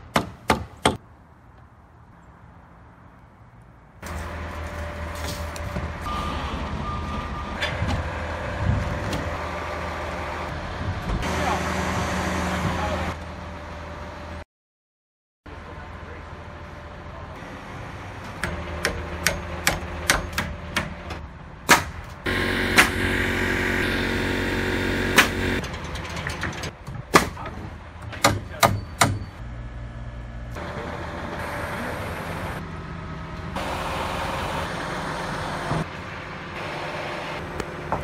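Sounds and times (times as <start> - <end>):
engine hum: 1.0 - 14.4, 15.5 - 27.0, 29.4 - 38.0
steady motor running: 22.3 - 25.6
sharp hammer strikes: 22.7 - 23.2.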